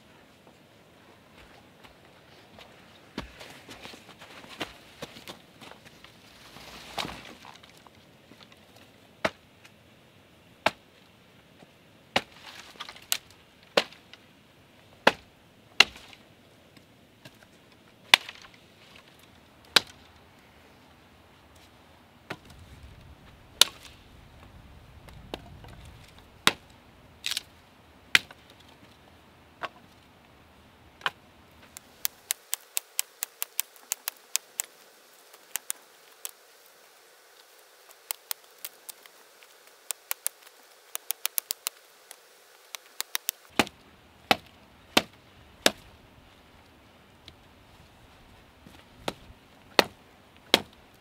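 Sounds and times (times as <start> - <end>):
sharp chopping strikes: 31.8 - 36.4, 49.8 - 50.7.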